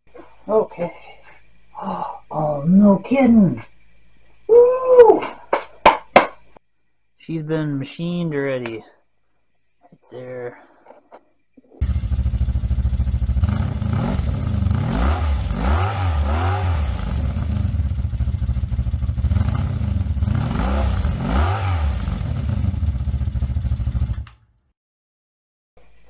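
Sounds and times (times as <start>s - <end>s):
motorcycle engine revving: 11.8s - 24.4s.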